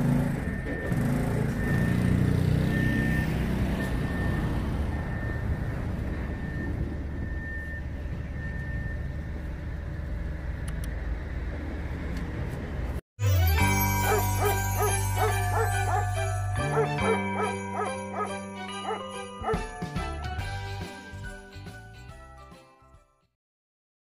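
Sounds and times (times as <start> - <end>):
motor scooter passing: 0.0 - 6.6, 13.3 - 19.0
street traffic rumble: 0.0 - 13.0, 13.8 - 21.2.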